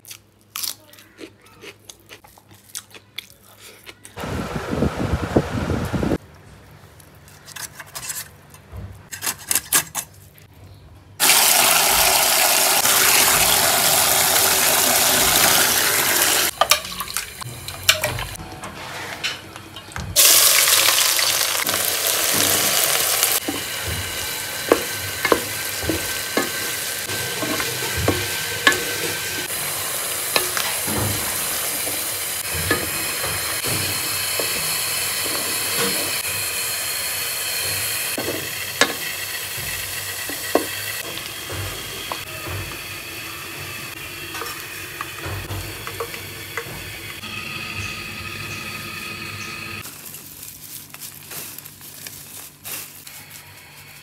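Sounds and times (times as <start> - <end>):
onions sizzling in oil: 11.2 - 18.4, 20.2 - 49.9
spatula scraping pan: 23.4 - 36.4, 37.6 - 49.8.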